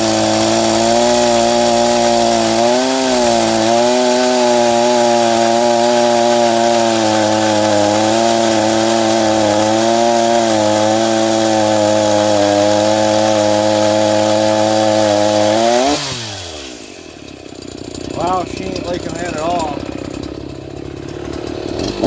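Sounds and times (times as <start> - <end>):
chainsaw cutting a log: 0.0 - 22.0
chainsaw idling: 0.0 - 22.0.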